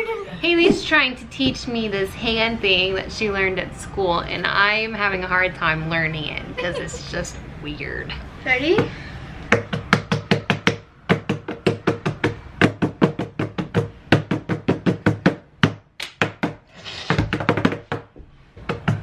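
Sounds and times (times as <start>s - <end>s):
hands slapping wooden tabletop: 9.5s - 19.0s.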